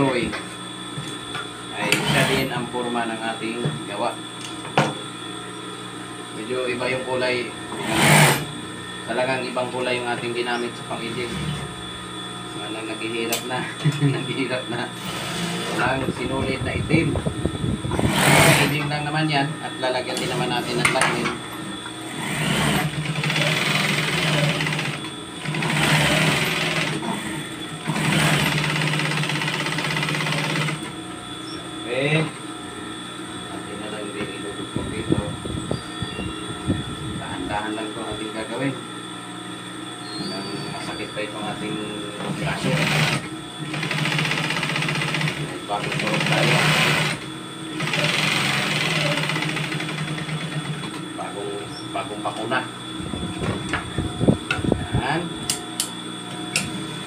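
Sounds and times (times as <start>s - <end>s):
steady motor hum: 0.0s - 57.0s
sewing machine stitching: 1.8s - 2.5s, 7.8s - 8.5s, 18.0s - 18.8s, 22.2s - 30.9s, 42.4s - 47.2s, 47.8s - 50.8s.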